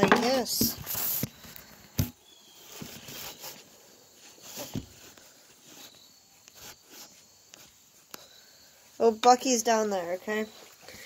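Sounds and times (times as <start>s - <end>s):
faint rustles: 0.3s - 9.1s.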